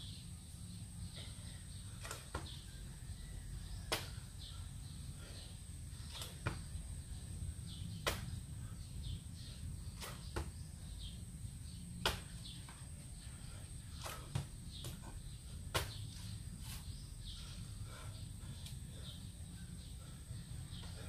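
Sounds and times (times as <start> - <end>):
hands slapping during exercise: 2.0 - 2.7, 3.8 - 4.4, 6.0 - 6.8, 7.9 - 8.5, 9.9 - 10.6, 11.9 - 13.1, 13.9 - 16.9.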